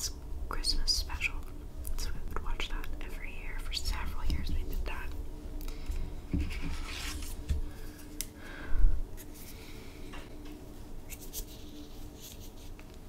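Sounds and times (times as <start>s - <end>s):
hands rustling on paper: 11.1s - 13.0s.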